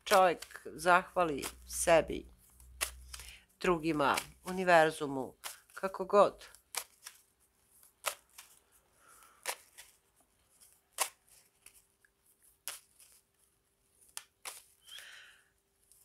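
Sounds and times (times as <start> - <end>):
cards shuffling: 0.0 - 15.2
card slap: 2.8 - 4.5, 8.0 - 8.6, 9.4 - 10.0, 11.0 - 11.2, 12.6 - 12.9, 14.2 - 14.7.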